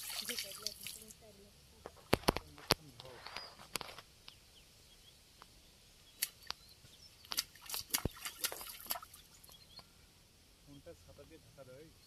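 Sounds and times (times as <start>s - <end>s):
water splashing and dripping: 0.0s - 1.2s, 7.2s - 9.6s.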